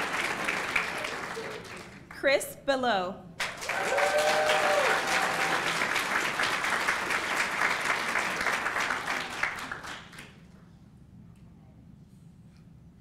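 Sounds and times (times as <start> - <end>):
audience applauding: 0.0 - 2.2, 3.4 - 10.5.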